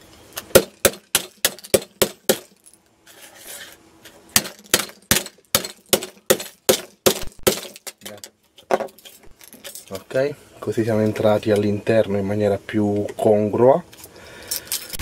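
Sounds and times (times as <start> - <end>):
hammer striking plastic box: 0.5 - 2.5, 4.4 - 8.0.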